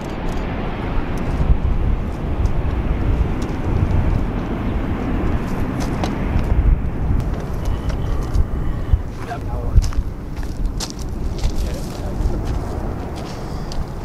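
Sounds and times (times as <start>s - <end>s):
airliner jet engines rumbling: 0.0s - 14.0s.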